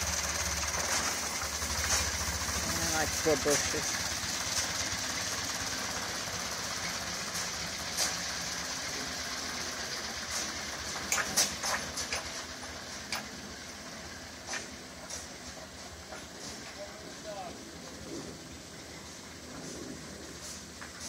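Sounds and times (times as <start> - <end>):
tractor engine running: 0.0 - 21.0
short metallic clanks: 10.4 - 13.4.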